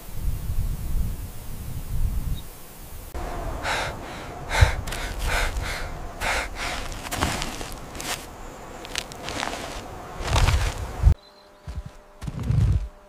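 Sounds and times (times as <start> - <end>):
low wind rumble: 0.0 - 13.0
person sniffing: 3.6 - 8.3.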